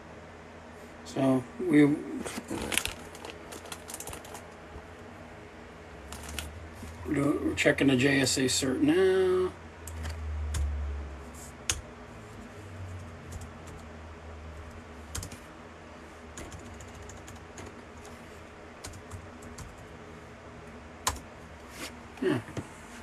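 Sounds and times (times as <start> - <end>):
low steady hum: 0.0 - 23.0
computer keyboard typing: 2.6 - 4.4, 6.1 - 6.5, 15.1 - 15.4, 16.4 - 18.1, 18.8 - 19.9, 21.0 - 21.2.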